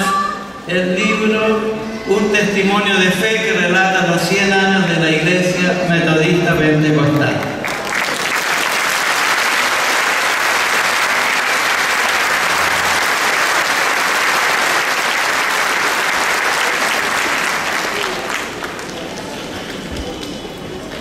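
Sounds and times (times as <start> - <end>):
crowd applauding: 7.1 - 21.0.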